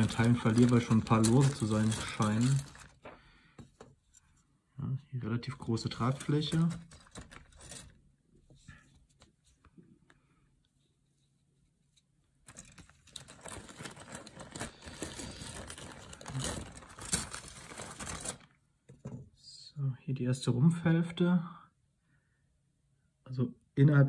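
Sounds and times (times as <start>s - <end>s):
plastic bag crinkling: 0.0s - 3.3s, 12.5s - 18.6s.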